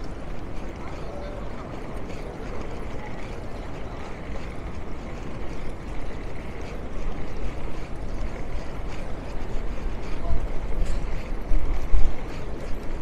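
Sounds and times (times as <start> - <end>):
low street rumble: 0.0 - 13.0.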